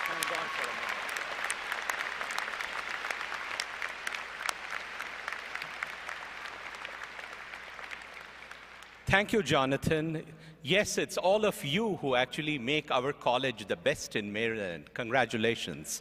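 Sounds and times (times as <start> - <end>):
crowd applauding: 0.0 - 9.1.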